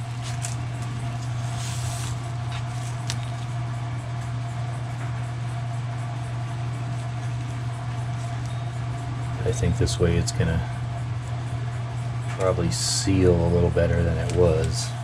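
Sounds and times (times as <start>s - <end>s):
tape peeling rustle: 0.0s - 3.6s
machinery humming: 0.0s - 15.0s.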